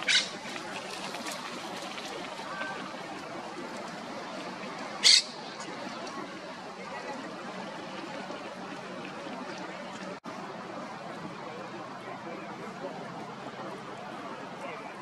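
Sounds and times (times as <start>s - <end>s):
parakeet squawk: 0.0s - 0.4s, 5.0s - 5.4s
outdoor background noise: 0.0s - 15.0s.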